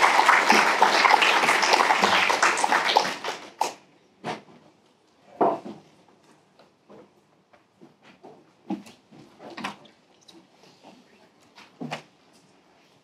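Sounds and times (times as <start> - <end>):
audience applauding: 0.0 - 3.8.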